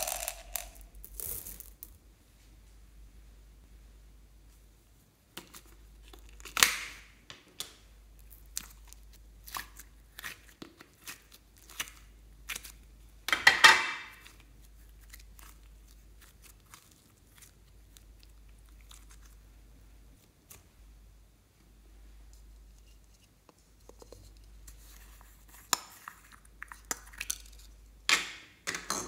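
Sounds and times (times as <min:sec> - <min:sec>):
slime crackling and popping: 0:00.0 - 0:01.8.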